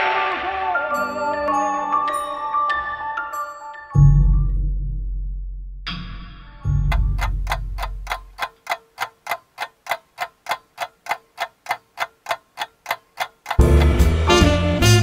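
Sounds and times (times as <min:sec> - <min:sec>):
clock ticking: 0:06.9 - 0:14.4.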